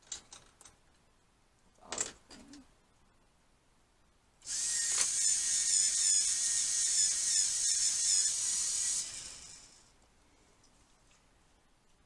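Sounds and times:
electric pencil sharpener whirring: 4.4s - 9.9s.

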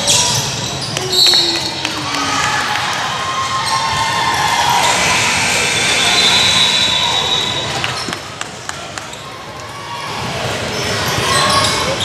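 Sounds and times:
basketball game noise: 0.0s - 12.0s.

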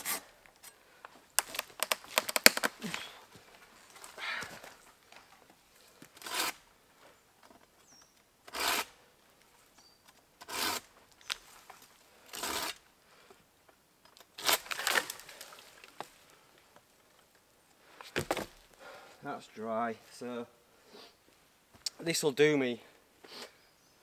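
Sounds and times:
pruning saw cutting branch: 6.2s - 6.6s.

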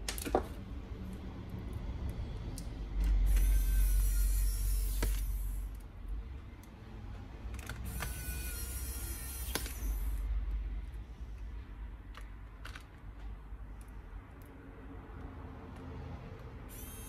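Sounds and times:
electric screwdriver whirring: 7.8s - 10.2s.

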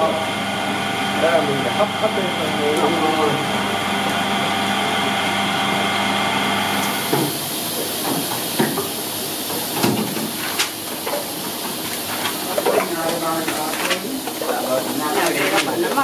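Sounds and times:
machine hum: 0.0s - 16.0s
steam hissing: 6.4s - 16.0s.

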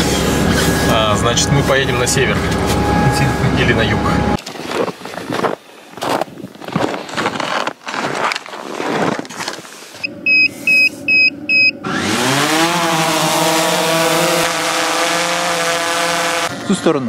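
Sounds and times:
short high beeps: 10.0s - 11.8s
drone propellers buzzing: 10.0s - 17.0s.

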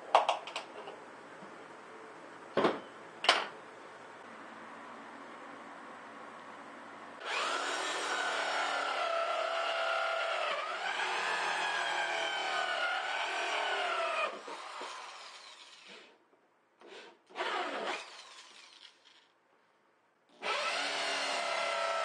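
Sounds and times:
electric drill cutting plastic: 7.2s - 16.2s, 16.8s - 19.3s, 20.4s - 22.0s.

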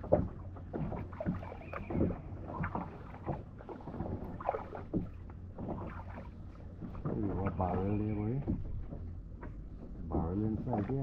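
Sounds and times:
paddle splashing in water: 0.0s - 9.8s.

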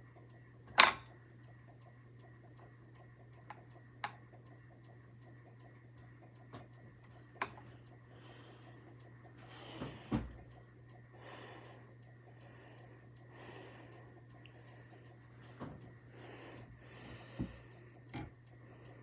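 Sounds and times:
steady low hum: 0.0s - 19.0s
nasal breathing: 7.6s - 19.0s.

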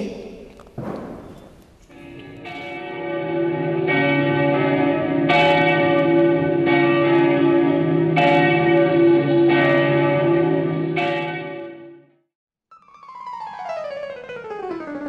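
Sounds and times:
church bells ringing: 1.9s - 12.2s.

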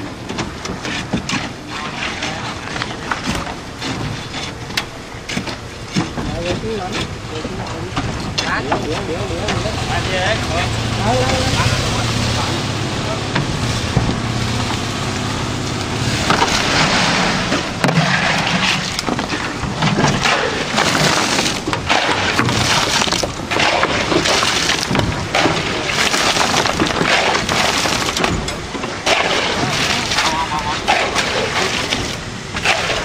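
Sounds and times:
shovels scraping wet concrete: 0.9s - 4.6s, 16.1s - 33.0s
low hum: 6.9s - 33.0s.

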